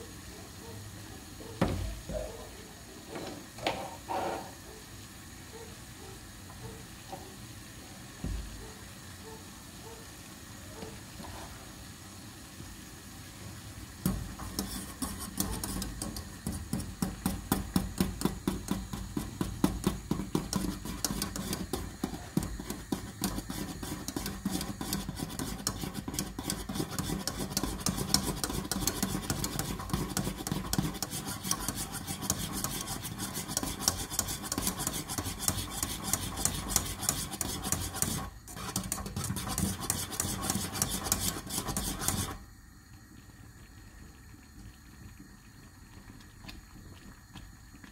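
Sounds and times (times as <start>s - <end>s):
utensil scraping a cooking pot: 3.2s - 4.6s, 14.0s - 42.4s.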